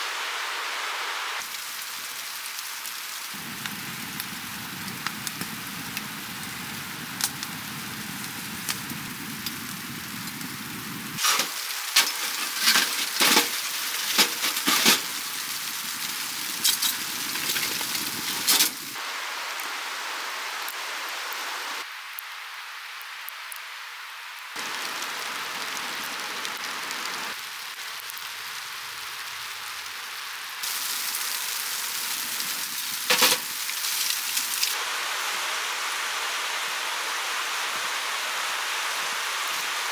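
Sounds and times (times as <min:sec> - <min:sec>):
wood fire hissing: 0:00.0 - 0:39.9
fire crackling and popping: 0:01.4 - 0:19.7, 0:24.3 - 0:34.8.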